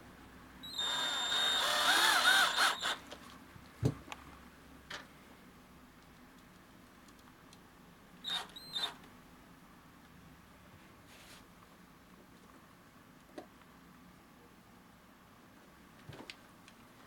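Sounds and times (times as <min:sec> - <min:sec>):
cordless drill motor whine: 0:00.6 - 0:03.0, 0:08.2 - 0:09.0.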